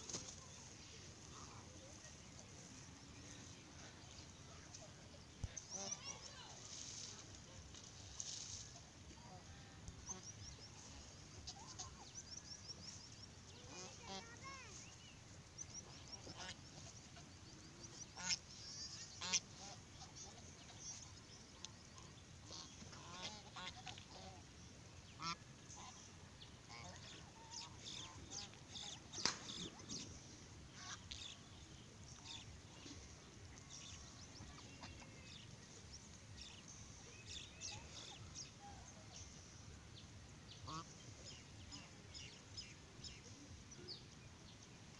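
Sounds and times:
geese honking: 0:16.2 - 0:16.6, 0:18.2 - 0:18.4, 0:19.2 - 0:20.5, 0:22.0 - 0:24.4, 0:40.6 - 0:40.9.

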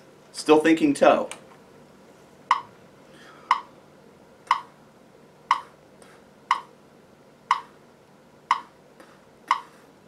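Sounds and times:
metronome clicking: 0:04.5 - 0:04.7, 0:05.5 - 0:05.7, 0:06.5 - 0:06.7, 0:07.5 - 0:07.7, 0:08.5 - 0:08.7, 0:09.5 - 0:09.7.

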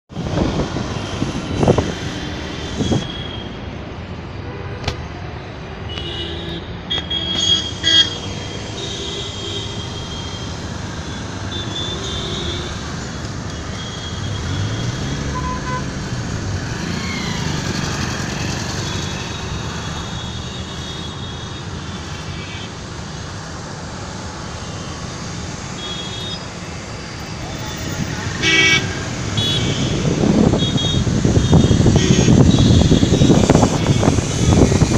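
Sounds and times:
vehicle horns honking: 0:13.9 - 0:15.9, 0:27.7 - 0:34.2.

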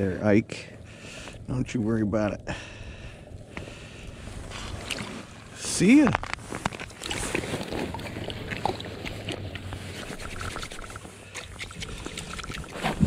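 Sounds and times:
hands splashing in slushy water: 0:04.6 - 0:05.3, 0:06.8 - 0:13.0.

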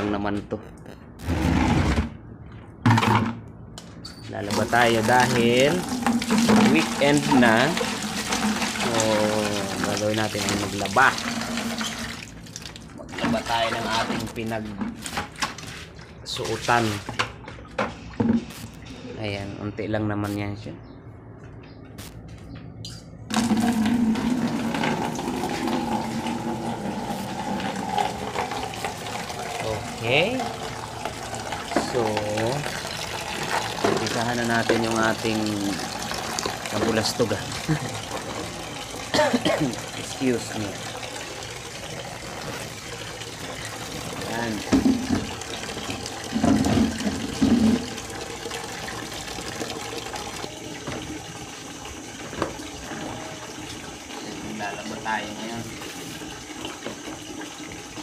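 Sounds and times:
tap water running into plastic basin: 0:04.4 - 0:14.5, 0:23.3 - 0:58.0.

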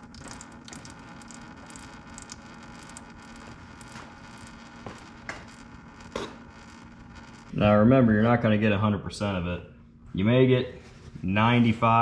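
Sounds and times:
low steady hum: 0:00.0 - 0:12.0
paper towel rustling and scraping: 0:10.6 - 0:12.0.

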